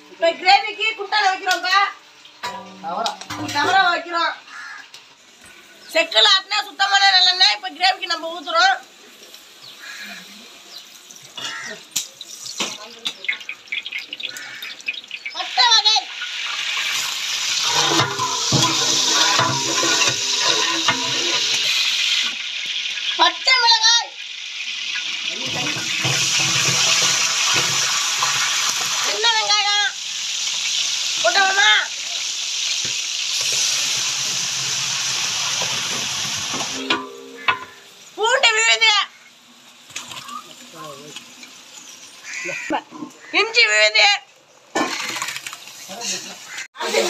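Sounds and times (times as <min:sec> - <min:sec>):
spices sizzling in hot oil: 0:00.0 - 0:47.0
ringing metal clanks: 0:17.6 - 0:21.8, 0:36.8 - 0:37.9.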